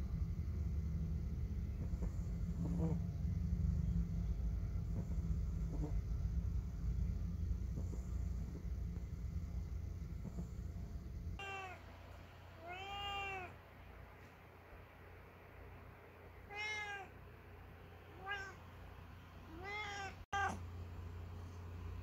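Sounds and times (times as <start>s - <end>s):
cat meowing: 11.4s - 11.8s, 12.6s - 13.6s, 16.5s - 17.2s, 18.2s - 18.6s, 19.5s - 20.6s.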